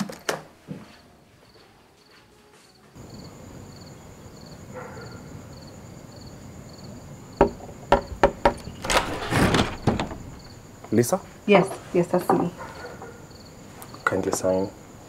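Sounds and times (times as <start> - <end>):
crickets chirping: 1.4 - 15.0
knocks on a door: 7.4 - 10.6.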